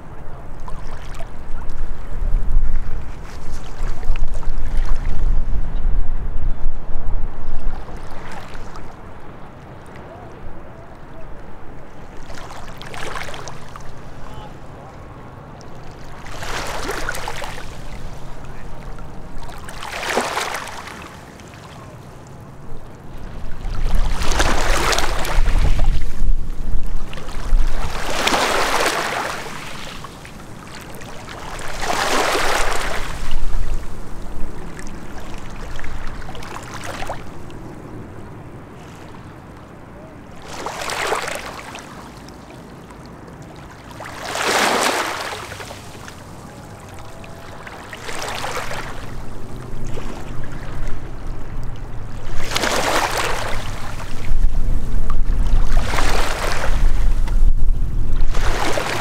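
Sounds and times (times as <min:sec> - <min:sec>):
small waves lapping on rocks: 0:11.9 - 0:37.6, 0:40.3 - 0:57.4, 0:58.2 - 0:59.0.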